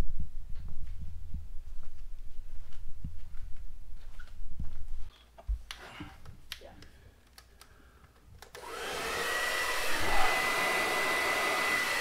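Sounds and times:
hair dryer running: 8.5 - 12.0.

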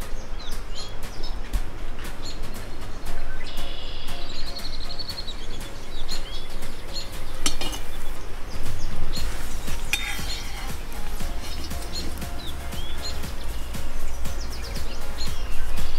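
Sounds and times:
metal skimmer scraping iron pot: 7.4 - 8.1, 9.2 - 12.7.

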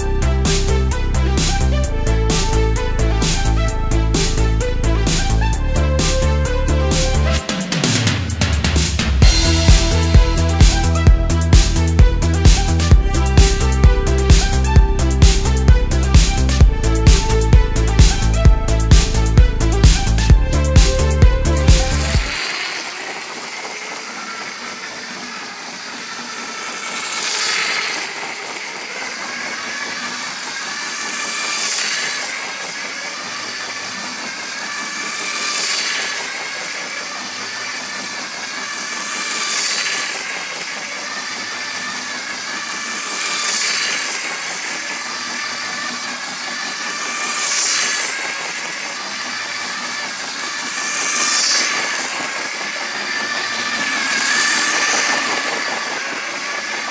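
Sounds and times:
toy train motor whirring: 19.0 - 56.9.

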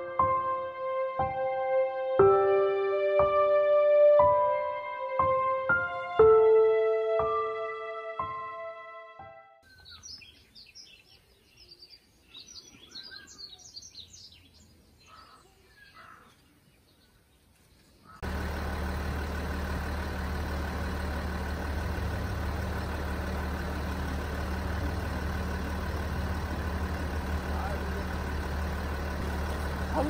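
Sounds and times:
birds chirping faintly: 9.6 - 19.0
car engine idling: 18.2 - 30.0.

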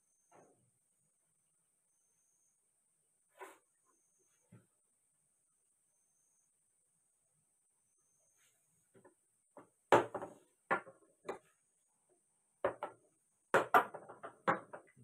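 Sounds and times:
chess pieces knocking on wooden board: 12.6 - 15.0.

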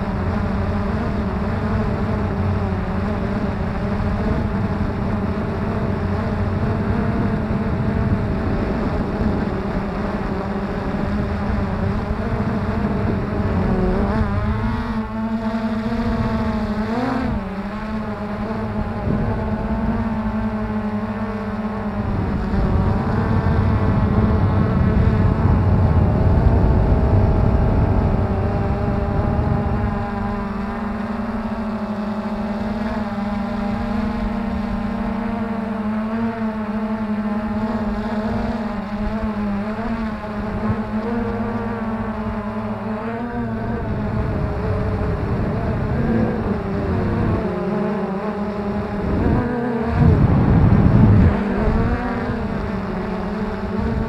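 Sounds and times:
drone motors whining: 0.0 - 54.0
low rumble: 50.0 - 51.9.

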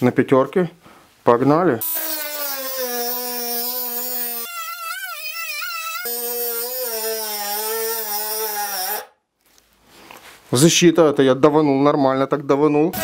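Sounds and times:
rotary tool grinding steel: 1.8 - 9.1.

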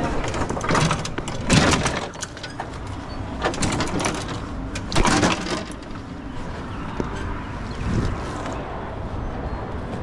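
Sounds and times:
metal hand truck rattling: 0.0 - 6.2.

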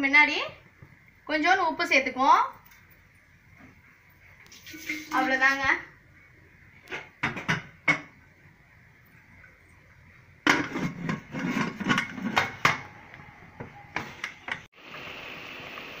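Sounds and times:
metal lid knocks and clatters: 7.0 - 8.1, 10.4 - 12.9.

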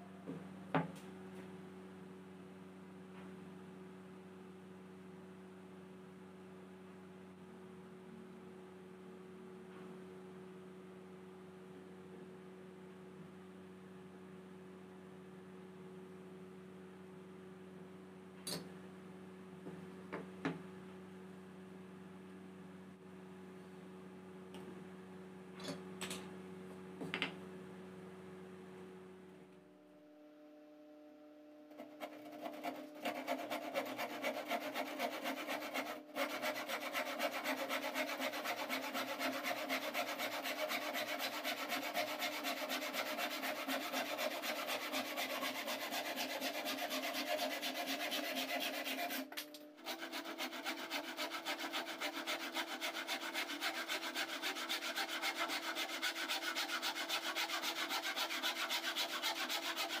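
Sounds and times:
hand saw cutting plywood: 31.7 - 60.0.

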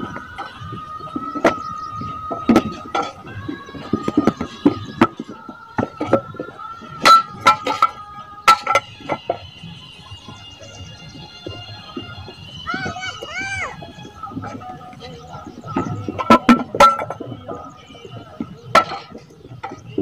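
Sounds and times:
clay bricks knocking and clinking: 2.2 - 9.6, 14.4 - 20.0.

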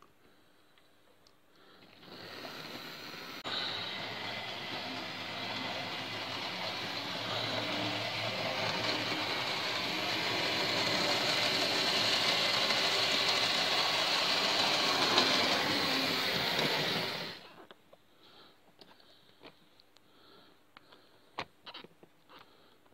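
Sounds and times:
model train motor whirring: 1.8 - 17.5
wheels rattling over rails: 3.4 - 17.4.

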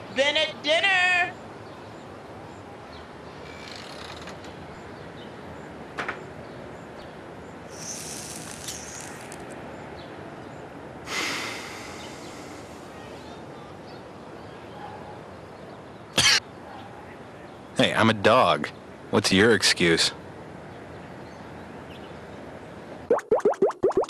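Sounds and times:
outdoor background hiss: 0.0 - 23.1
bursts of high hiss: 7.7 - 9.6.

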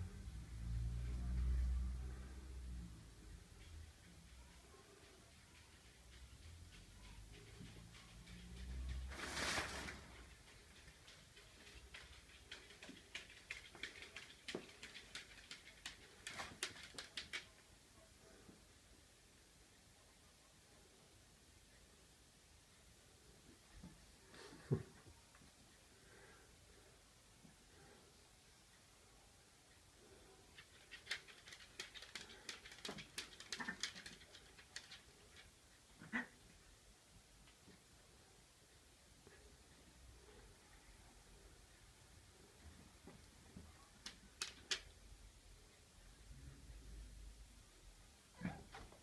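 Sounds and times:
kittens scuffling on carpet: 3.6 - 17.5
kitten claws clicking on wooden floor: 10.4 - 17.6, 30.6 - 35.5, 44.0 - 44.9.

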